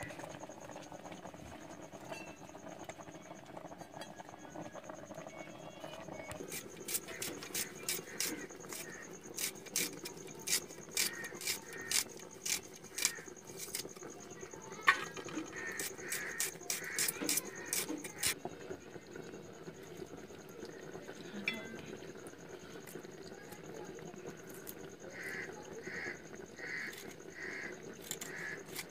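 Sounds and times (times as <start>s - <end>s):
knife cutting onion skins: 6.4s - 13.9s, 15.6s - 18.4s.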